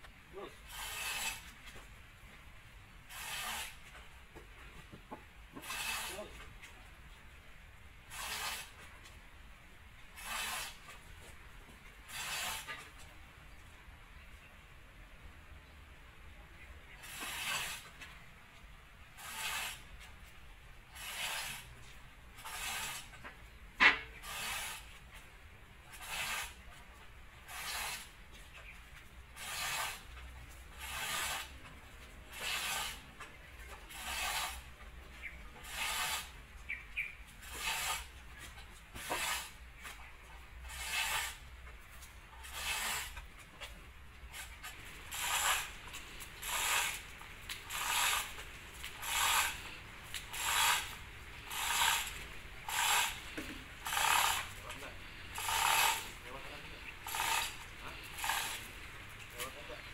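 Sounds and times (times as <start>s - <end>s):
tool scraping packed mud: 0.3s - 1.9s, 3.1s - 4.0s, 5.5s - 6.8s, 8.1s - 8.9s, 10.1s - 11.3s, 12.1s - 12.9s, 16.9s - 18.1s, 19.2s - 20.0s, 20.9s - 21.7s, 22.4s - 25.2s, 25.9s - 26.8s, 27.4s - 28.7s, 29.3s - 59.9s.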